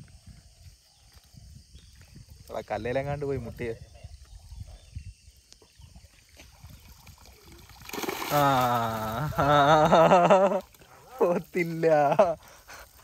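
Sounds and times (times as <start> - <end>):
water dripping and splashing: 6.1 - 11.8.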